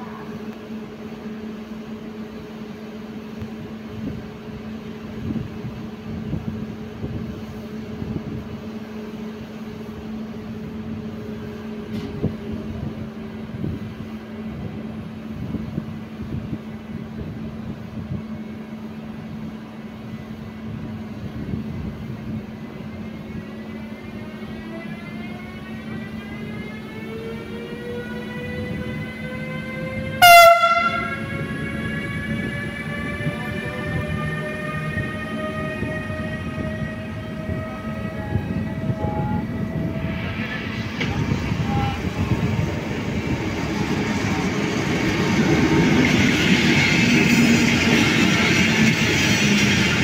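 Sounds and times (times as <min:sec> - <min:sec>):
electric locomotive hum: 0:00.0 - 0:50.0.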